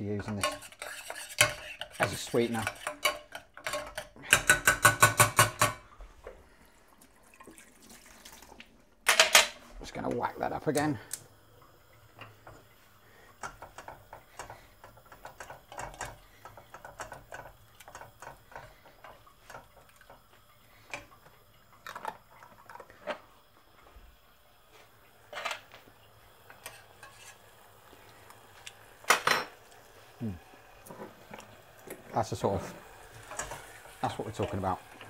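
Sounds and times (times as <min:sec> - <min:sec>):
utensil clinking against a saucepan: 0:00.1 - 0:05.9, 0:13.4 - 0:20.2, 0:26.5 - 0:27.4, 0:33.2 - 0:35.0.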